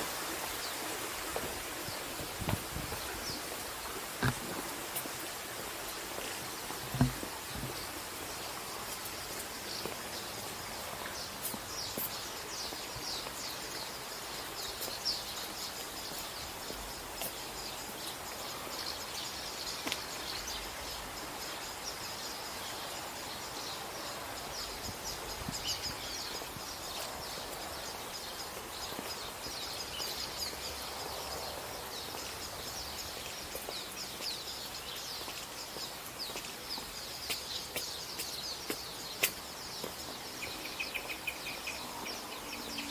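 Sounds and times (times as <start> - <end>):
outdoor background hiss: 0.0 - 42.9
small birds chirping: 0.5 - 42.9.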